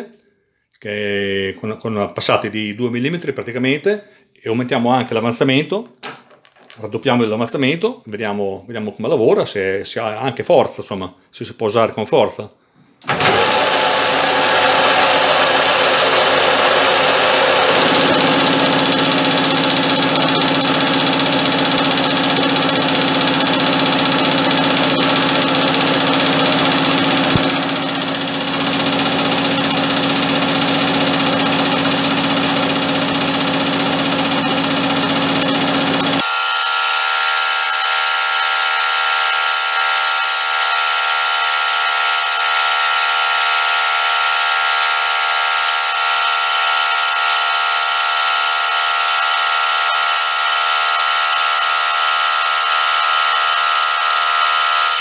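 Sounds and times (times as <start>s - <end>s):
metal lathe machining: 13.1s - 55.0s.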